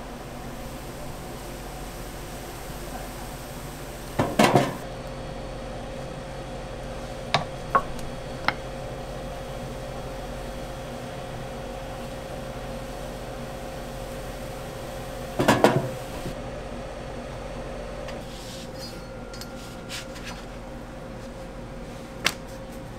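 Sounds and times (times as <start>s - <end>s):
kitchen hum: 0.0s - 22.9s
wooden spreader knocking on griddle: 4.2s - 4.8s, 15.4s - 16.0s.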